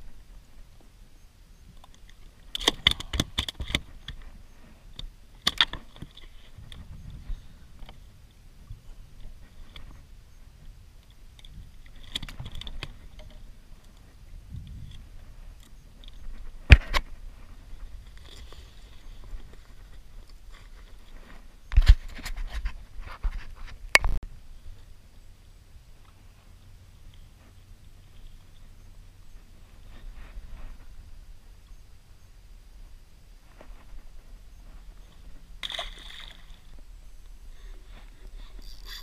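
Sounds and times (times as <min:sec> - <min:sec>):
metal tackle clicking and rattling: 0:11.0 - 0:14.1, 0:38.2 - 0:39.0.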